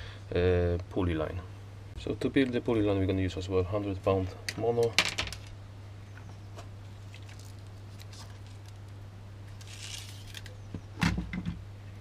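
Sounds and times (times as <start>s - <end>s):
steady low hum: 0.0s - 12.0s
fishing line clicks and rustles: 6.9s - 10.6s.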